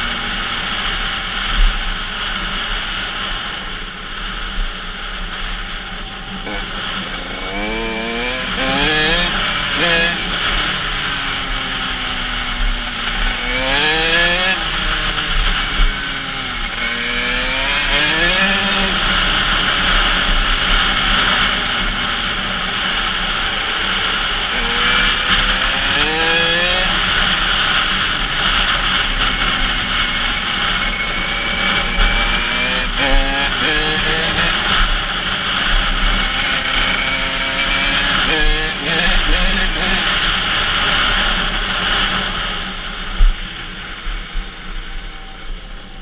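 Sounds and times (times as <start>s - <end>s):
two-stroke engine revving: 6.4s - 42.7s.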